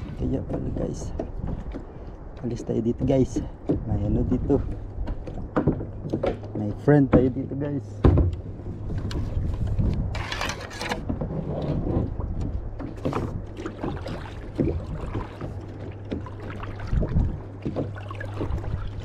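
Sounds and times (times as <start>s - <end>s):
kayak paddle splashing water: 10.2s - 19.0s.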